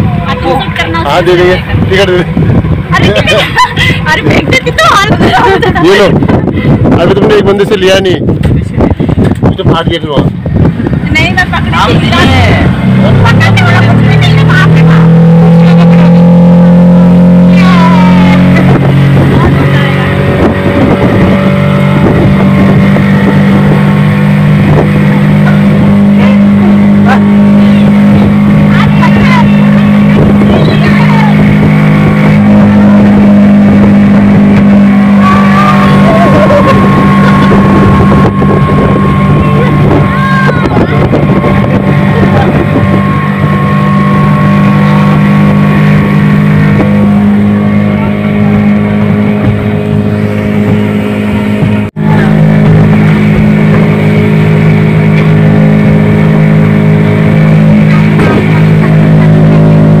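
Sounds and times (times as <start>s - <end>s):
outboard motor droning: 0.0s - 60.0s.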